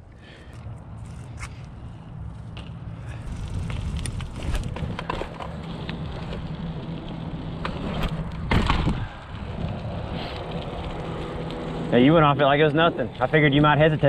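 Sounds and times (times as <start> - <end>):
bike tyres rumbling on concrete: 1.0 - 14.0
bike landing thump: 7.6 - 9.2.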